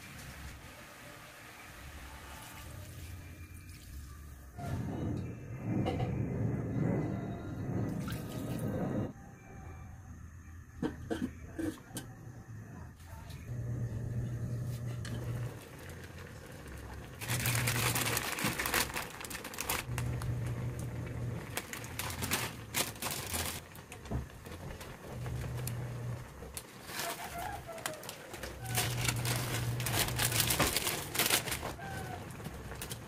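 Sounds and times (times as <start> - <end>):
noodle packet rustling: 15.4 - 33.0.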